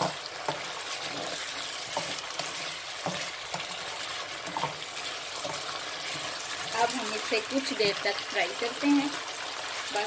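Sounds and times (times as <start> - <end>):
wooden spatula scraping pan: 0.0 - 7.7
meat sizzling in hot oil: 0.0 - 10.0.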